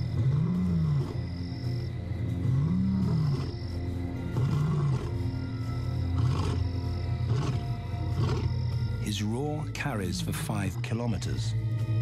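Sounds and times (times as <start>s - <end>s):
lion roaring: 0.0s - 1.4s, 2.3s - 3.6s, 4.2s - 5.3s, 6.1s - 8.6s
documentary music: 0.0s - 12.0s.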